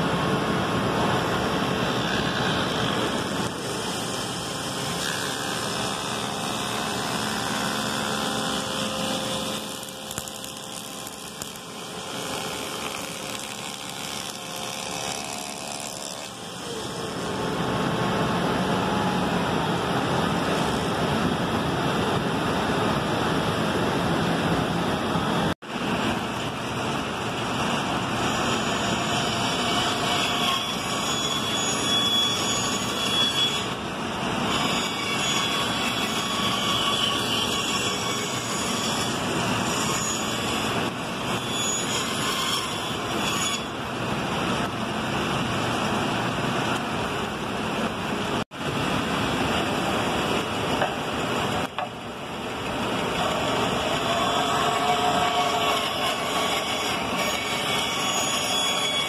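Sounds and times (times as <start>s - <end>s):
band saw cutting wood: 1.4s - 17.5s, 28.0s - 43.8s, 53.1s - 59.0s
spindle shaper running: 1.8s - 17.4s.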